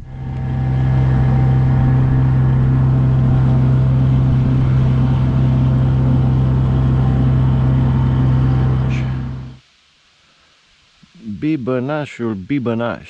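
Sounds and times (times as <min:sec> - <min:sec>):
motorboat engine droning: 0:00.0 - 0:09.6.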